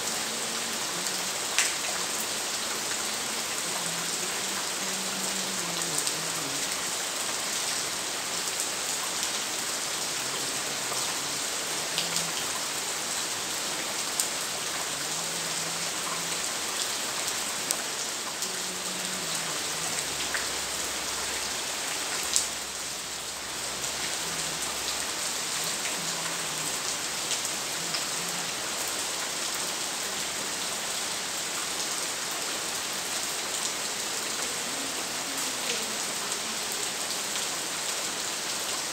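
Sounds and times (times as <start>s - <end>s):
steady rain falling: 0.0s - 38.9s.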